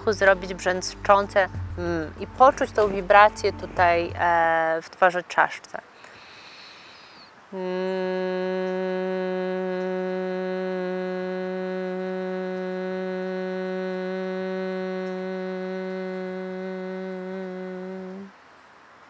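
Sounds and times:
woman humming steady note: 7.5 - 18.4.

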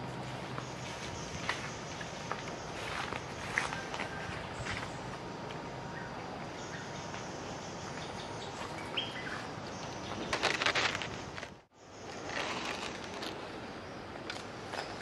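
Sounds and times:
outdoor background hiss: 0.0 - 15.0
bamboo bird cage rustling clatter: 9.8 - 13.6.

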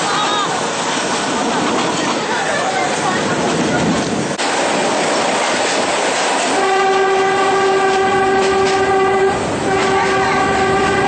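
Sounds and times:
moving train rattling: 0.0 - 11.0
train horn blast: 6.5 - 11.0.

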